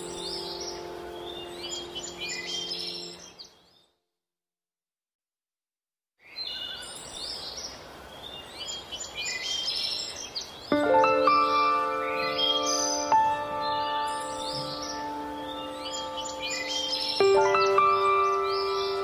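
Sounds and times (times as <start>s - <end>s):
low held music tones: 0.0s - 3.3s
birds chirping: 0.0s - 4.0s, 6.2s - 19.0s.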